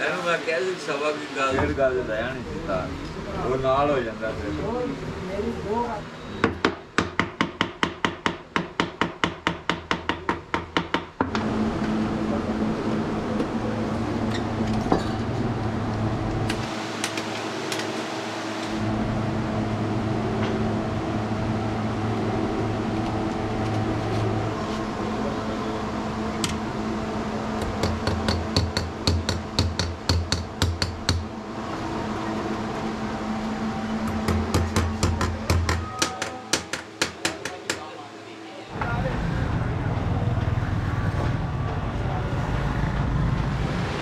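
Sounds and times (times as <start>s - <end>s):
hammer tapping on metal: 6.4s - 11.3s, 27.6s - 31.3s, 34.1s - 37.9s
steady hum: 11.2s - 44.0s.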